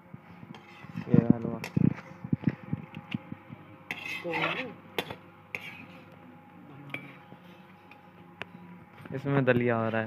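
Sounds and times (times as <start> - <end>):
utensils clinking against steel pot: 6.9 - 8.1.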